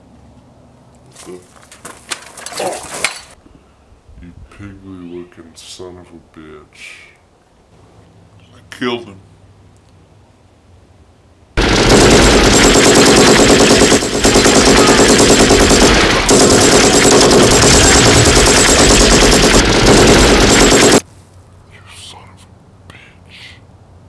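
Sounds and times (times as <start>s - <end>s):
submachine gun fire: 11.6s - 21.0s.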